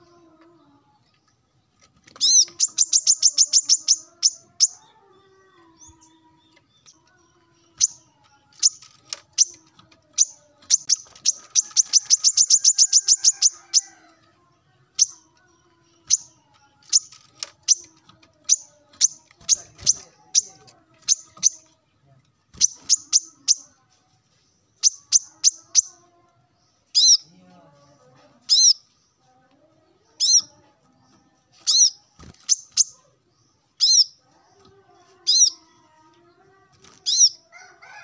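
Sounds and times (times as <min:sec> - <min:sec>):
sunbird singing trills: 0:02.1 - 0:14.0, 0:22.5 - 0:23.8, 0:26.6 - 0:27.5, 0:28.5 - 0:28.8, 0:30.1 - 0:30.6, 0:31.6 - 0:33.0, 0:33.7 - 0:34.2, 0:35.1 - 0:35.8, 0:37.0 - 0:37.4.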